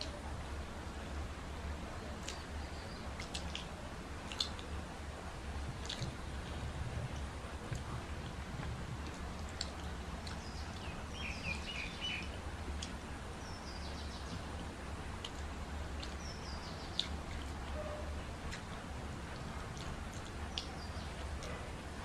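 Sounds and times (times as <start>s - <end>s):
steady low hum: 0.0s - 22.0s
small birds chirping: 2.0s - 4.8s, 9.5s - 18.8s, 19.8s - 21.6s.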